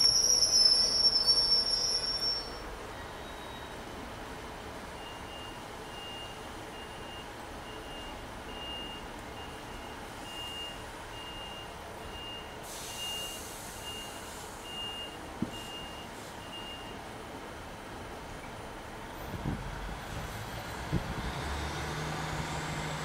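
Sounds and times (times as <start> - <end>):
hiss: 12.6 - 14.9.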